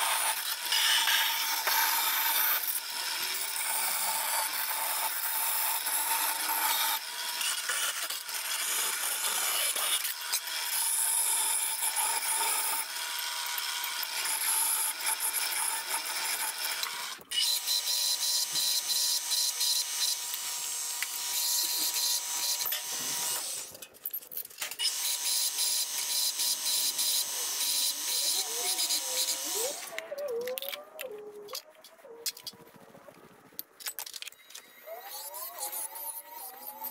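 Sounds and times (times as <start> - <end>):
bandsaw cutting aluminium sheet: 0.0 - 23.9, 24.5 - 30.0, 34.8 - 36.9
belt sander whining: 24.9 - 30.1.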